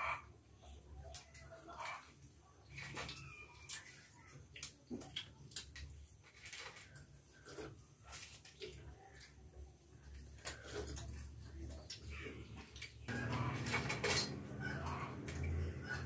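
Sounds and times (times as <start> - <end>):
metal bowls clinking: 13.1 - 16.0.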